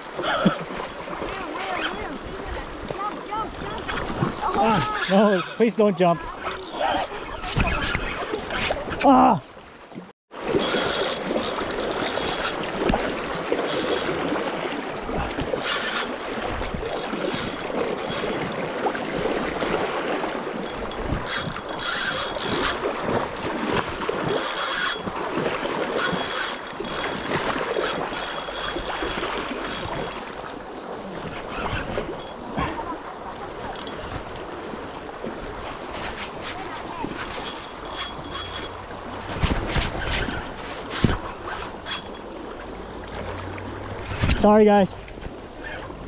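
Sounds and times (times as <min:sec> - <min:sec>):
fishing reel whirring and clicking: 0:01.6 - 0:02.4, 0:03.4 - 0:07.2, 0:10.5 - 0:13.0, 0:13.6 - 0:14.3, 0:15.4 - 0:18.6, 0:20.6 - 0:22.8, 0:24.2 - 0:25.2, 0:25.9 - 0:30.3, 0:32.0 - 0:32.4, 0:33.7 - 0:34.2, 0:37.2 - 0:38.8, 0:41.0 - 0:42.4.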